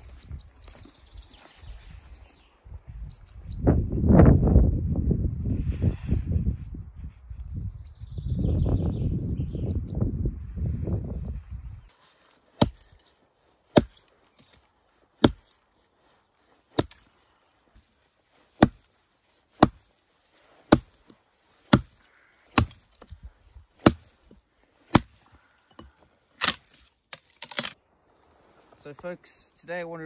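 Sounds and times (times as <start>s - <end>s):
axe chopping into log: 12.6s - 12.9s, 13.7s - 14.5s, 15.2s - 15.6s, 16.7s - 17.1s, 18.6s - 18.9s, 19.6s - 19.9s, 20.7s - 23.1s, 23.8s - 24.2s, 24.9s - 25.2s, 26.4s - 27.8s.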